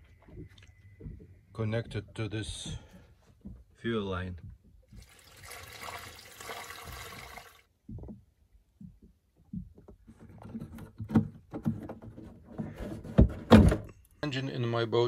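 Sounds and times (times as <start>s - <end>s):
gasoline pouring into plastic jug: 4.9s - 7.7s.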